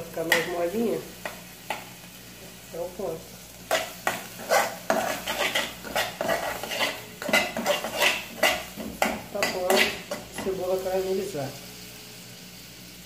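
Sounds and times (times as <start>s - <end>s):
metal spoon scraping a saucepan: 3.7s - 10.6s.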